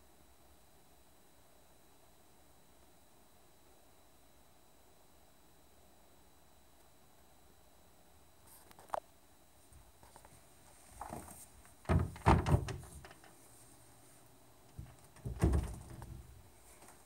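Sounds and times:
cabinet door knock: 11.9 - 12.8
cabinet door thuds: 11.9 - 13.1, 14.8 - 16.3.

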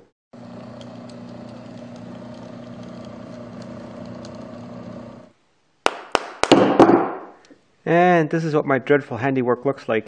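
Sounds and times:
lathe motor humming: 0.4 - 5.4
sharp knocks: 5.9 - 7.4.

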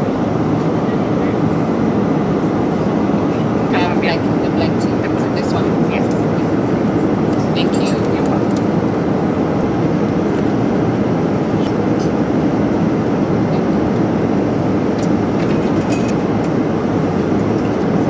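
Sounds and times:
airliner cabin rumble: 0.0 - 18.0
tableware clinking: 7.6 - 8.4.

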